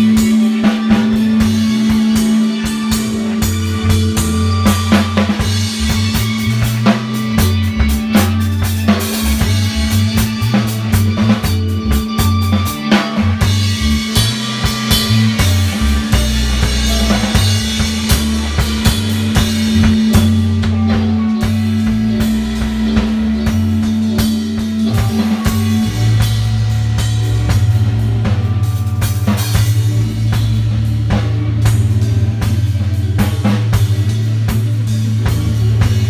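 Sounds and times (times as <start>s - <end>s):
steady held note: 0.0s - 33.1s
deep bass line: 0.0s - 36.0s
drum kit beat: 0.0s - 36.0s.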